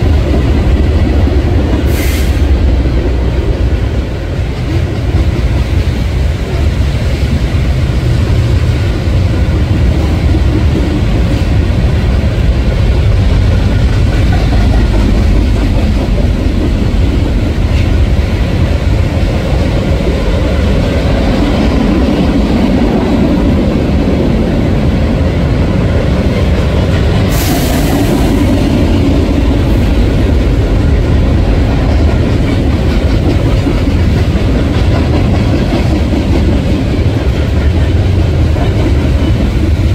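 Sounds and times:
train wheels on rail: 0.0s - 39.9s
high hiss: 27.2s - 28.9s.

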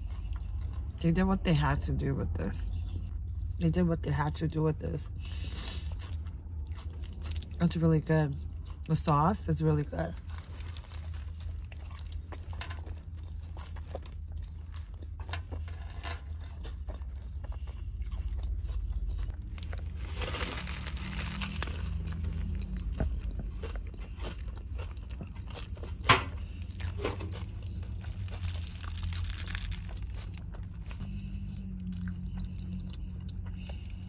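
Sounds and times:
close-up chewing and biting: 0.0s - 1.2s, 5.3s - 34.0s
wrapper crinkling: 10.1s - 14.1s, 19.4s - 22.7s, 28.0s - 30.4s.

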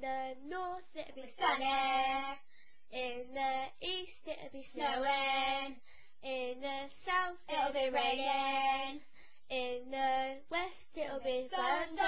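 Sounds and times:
girl singing unaccompanied: 0.0s - 12.0s.

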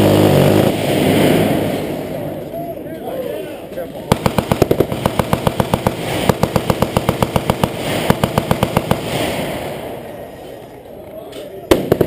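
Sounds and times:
machine gun firing automatic: 4.1s - 9.3s, 11.7s - 12.0s.

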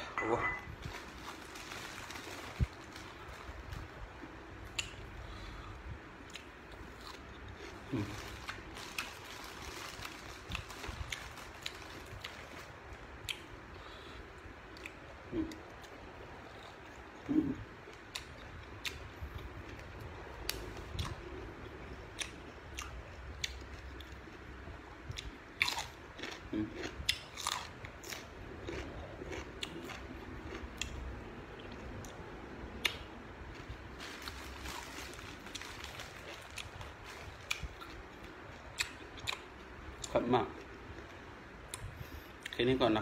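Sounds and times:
person chewing crunchy beans: 4.7s - 12.6s, 25.1s - 42.6s.

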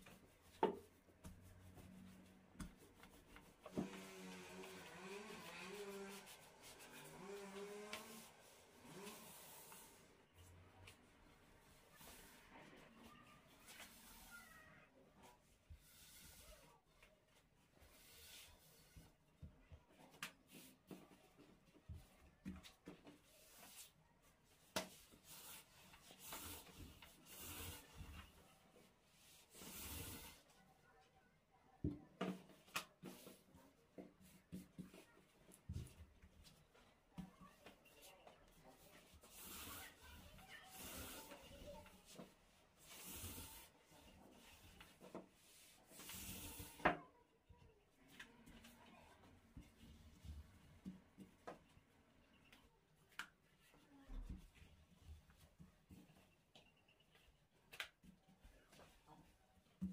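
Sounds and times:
rolling pin rolling pastry: 0.0s - 14.6s, 15.4s - 30.9s, 32.2s - 47.1s
faint rubbing of dough: 0.0s - 59.9s.

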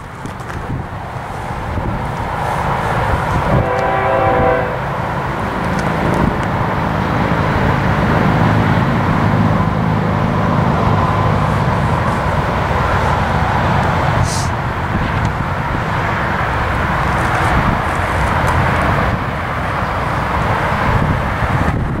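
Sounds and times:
train rumble: 0.0s - 22.0s
distant train horn: 2.4s - 6.1s.

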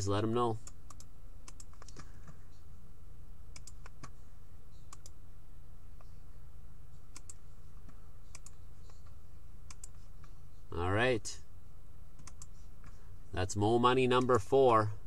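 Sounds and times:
steady low hum: 0.0s - 15.0s
light computer clicks: 0.6s - 2.4s, 7.1s - 10.4s, 12.2s - 13.0s.

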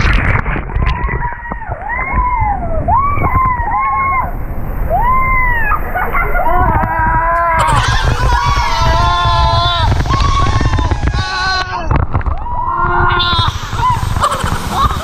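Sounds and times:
rushing water on a slide: 0.0s - 15.0s
riders yelling: 5.0s - 15.0s.

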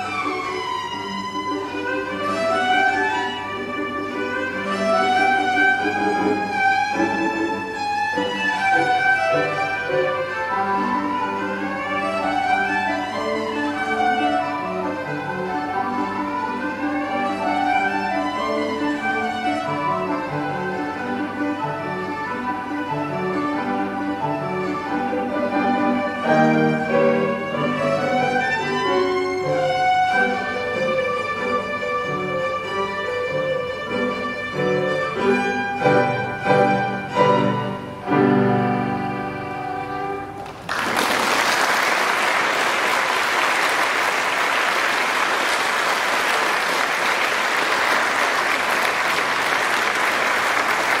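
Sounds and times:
violin with piano: 0.0s - 40.7s
audience applauding: 40.4s - 51.0s.

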